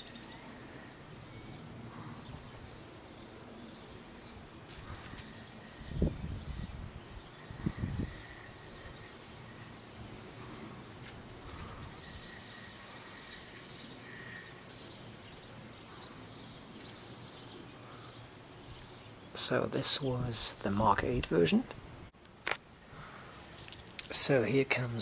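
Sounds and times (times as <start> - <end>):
faint outdoor background noise: 0.0 - 25.0.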